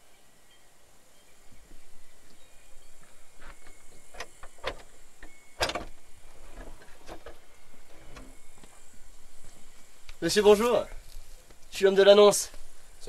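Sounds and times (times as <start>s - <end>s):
wooden door clunking open: 3.4s - 8.6s.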